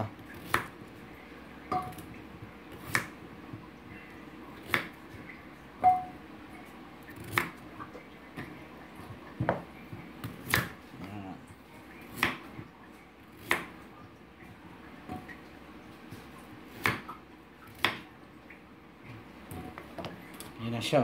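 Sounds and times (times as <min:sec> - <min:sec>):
knife cutting potato: 0:00.3 - 0:00.8, 0:02.7 - 0:03.2, 0:07.1 - 0:07.6, 0:10.2 - 0:10.8, 0:16.7 - 0:17.1, 0:17.7 - 0:18.1.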